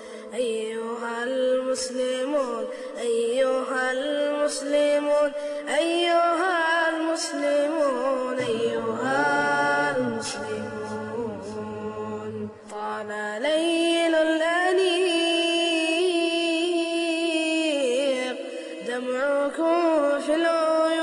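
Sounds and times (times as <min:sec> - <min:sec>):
solo voice chanting: 0:05.9 - 0:17.0.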